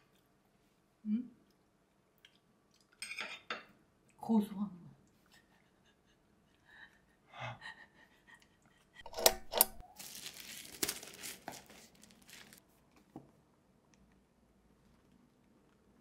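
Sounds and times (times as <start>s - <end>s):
plastic bag crinkling: 9.7s - 12.6s.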